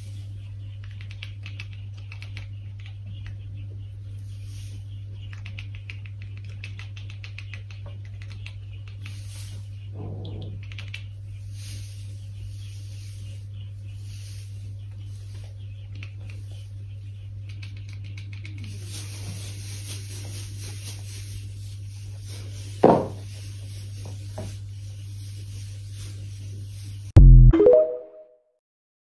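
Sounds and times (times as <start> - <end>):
cats chattering: 0.5 - 19.9.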